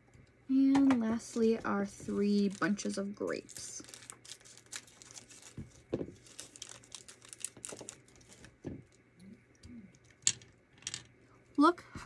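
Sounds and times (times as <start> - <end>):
plastic bag crinkling: 1.9 - 9.0.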